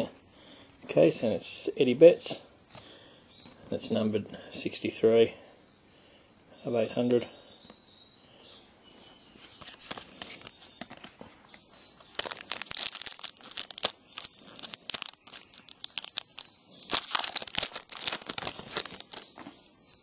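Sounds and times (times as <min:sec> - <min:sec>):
foil wrapper tearing and crinkling: 0:11.9 - 0:19.7.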